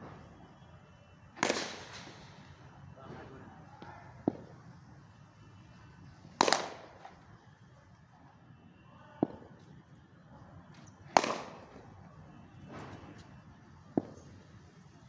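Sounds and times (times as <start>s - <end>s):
cricket bat striking ball: 1.4s - 2.2s, 4.1s - 4.7s, 6.4s - 7.2s, 9.2s - 9.6s, 11.1s - 12.0s, 13.9s - 14.5s.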